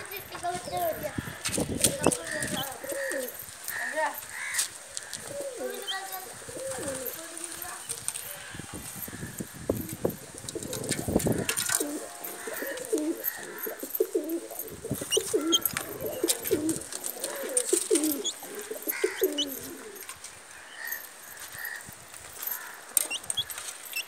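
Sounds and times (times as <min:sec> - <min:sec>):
pigeons cooing: 0:00.6 - 0:08.0, 0:08.8 - 0:20.2.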